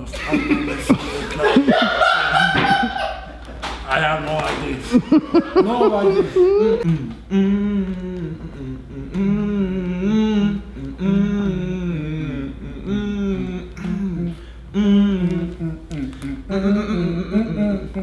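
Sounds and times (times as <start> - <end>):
man humming: 5.4 - 18.0.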